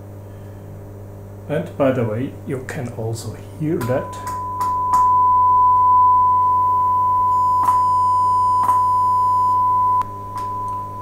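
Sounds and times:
distorted test tone: 3.8s - 11.0s.

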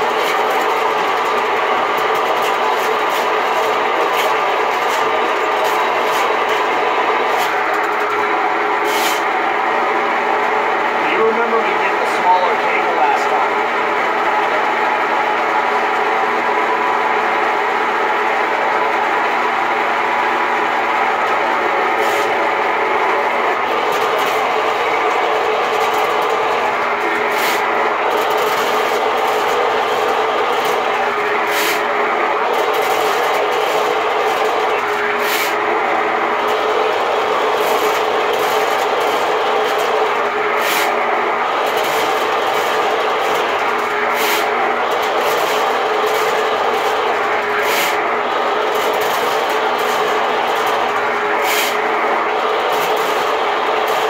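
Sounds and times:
drain machine motor whine: 0.0s - 54.0s
spinning cable clanks: 23.7s - 31.0s, 32.4s - 34.9s.

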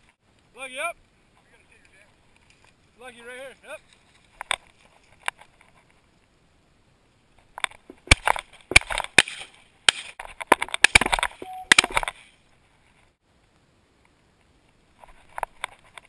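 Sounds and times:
brief steady tone: 11.4s - 12.0s.

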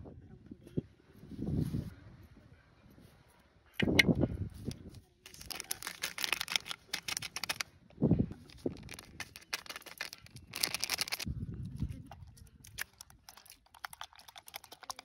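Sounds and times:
plastic packet crinkling: 5.3s - 7.7s, 8.5s - 11.3s, 12.4s - 15.0s.

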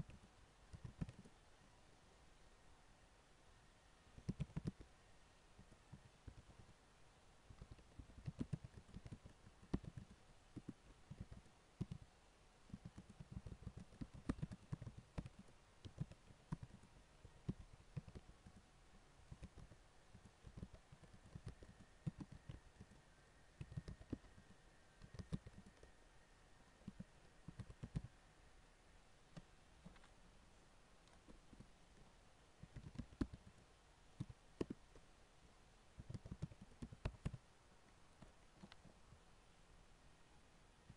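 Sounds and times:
typing on computer keyboard: 0.0s - 1.3s, 4.2s - 4.9s, 7.5s - 12.1s, 12.7s - 18.6s, 19.3s - 23.0s, 23.6s - 24.4s, 25.0s - 25.9s, 26.8s - 28.1s, 32.6s - 33.6s, 36.0s - 37.4s.

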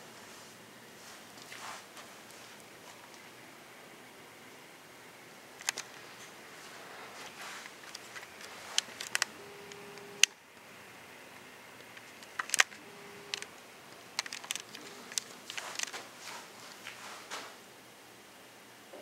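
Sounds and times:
steady whine: 0.0s - 19.0s
camcorder handling clicks and taps: 12.2s - 13.5s.

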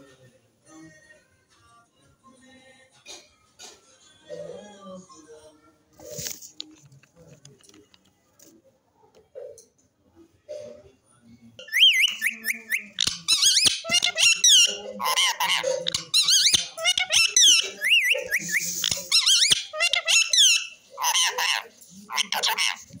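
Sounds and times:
parakeet chattering: 11.6s - 23.0s.

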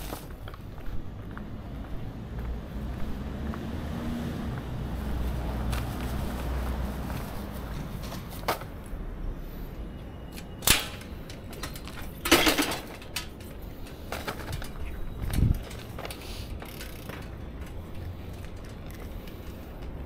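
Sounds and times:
bicycle metallic clacks: 10.3s - 20.0s
bicycle rattling clatter: 10.3s - 20.0s.

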